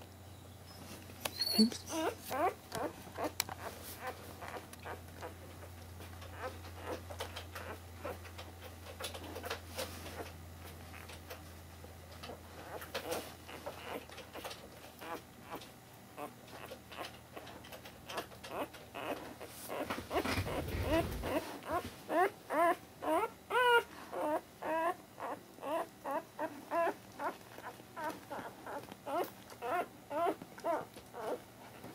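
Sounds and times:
puppy squeaking: 0.7s - 5.4s, 6.3s - 8.2s, 12.7s - 15.6s, 18.1s - 31.4s
steady low hum: 18.9s - 24.6s.

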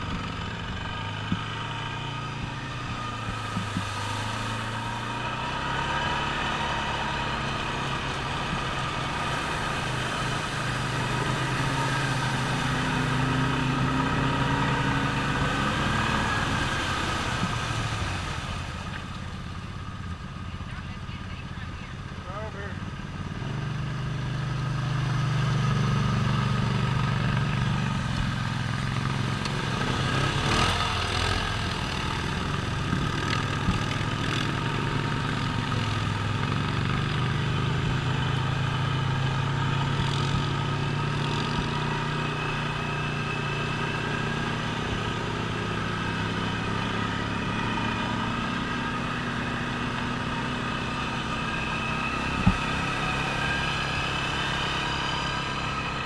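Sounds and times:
off-road vehicle engine running: 0.0s - 56.0s
water splashing: 1.2s - 19.8s.

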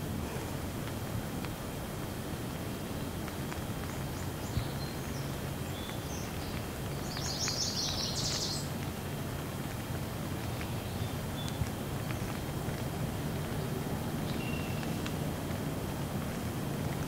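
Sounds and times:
heavy rain on trees and grass: 0.0s - 17.0s
water drips: 0.8s - 17.0s
bird chirping: 4.2s - 8.7s, 14.3s - 15.0s.

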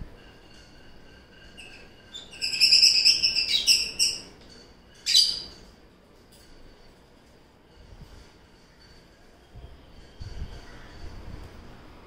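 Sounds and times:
lovebirds chirping: 1.6s - 4.3s.

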